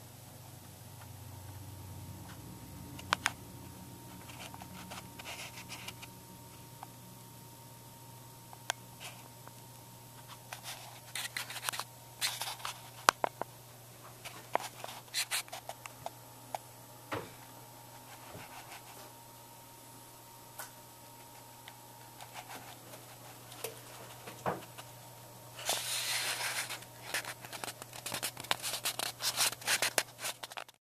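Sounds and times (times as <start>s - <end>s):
steady low hum: 0.0s - 30.6s
rubbing scrape: 25.6s - 30.7s.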